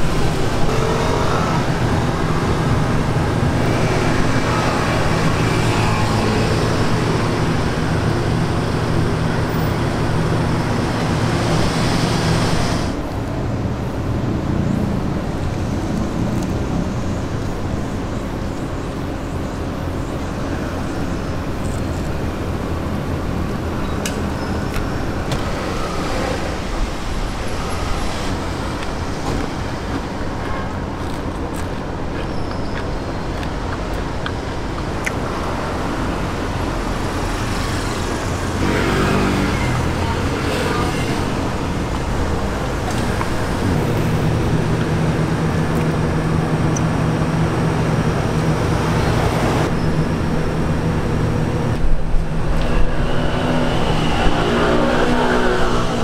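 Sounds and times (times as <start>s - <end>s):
traffic rumble: 0.0s - 56.0s
nearby engine drone: 35.2s - 56.0s.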